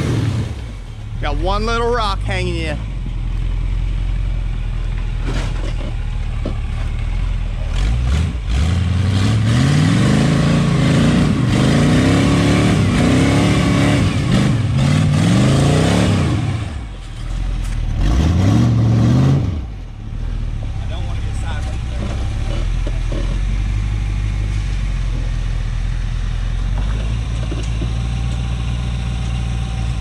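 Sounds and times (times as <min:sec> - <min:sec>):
off-road buggy engine revving: 0:00.0 - 0:30.0.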